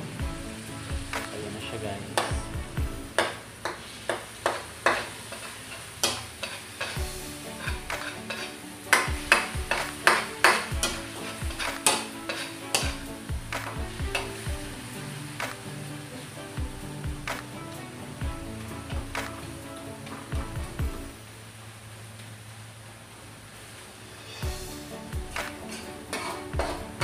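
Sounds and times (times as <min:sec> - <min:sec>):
frying sizzle: 0:00.0 - 0:27.0
metal spoon scraping wok: 0:03.1 - 0:13.2, 0:24.0 - 0:27.0.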